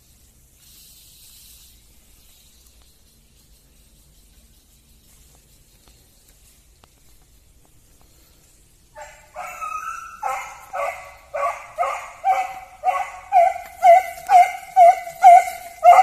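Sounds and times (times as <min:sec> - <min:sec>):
dog barking: 0:09.0 - 0:16.0.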